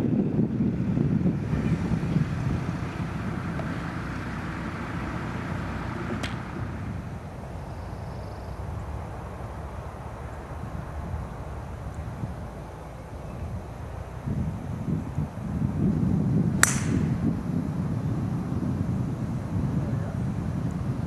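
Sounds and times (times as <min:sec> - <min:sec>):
wind buffeting microphone: 0:00.0 - 0:21.0
sharp click: 0:16.6 - 0:17.1.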